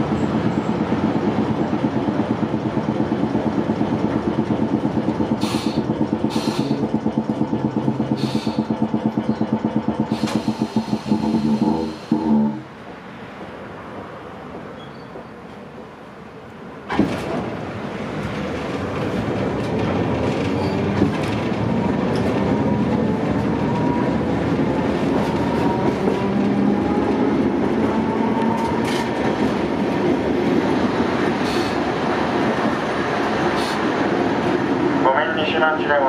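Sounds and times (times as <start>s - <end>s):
rising tram motor whine: 0.0s - 13.0s, 17.5s - 35.0s
wheels clacking on rails: 0.0s - 15.8s, 16.5s - 36.0s
tram clunk: 0.0s - 36.0s.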